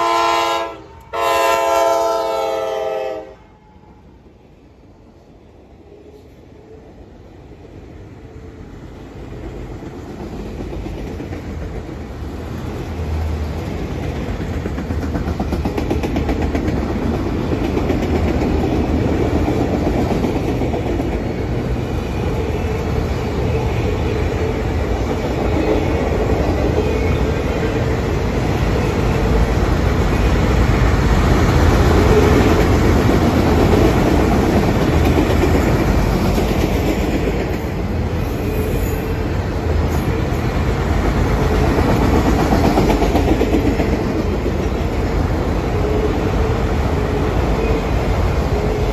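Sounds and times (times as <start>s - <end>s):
freight train rumbling past: 0.0s - 48.9s
wheels clacking over rail joints: 9.4s - 22.4s, 39.1s - 45.2s.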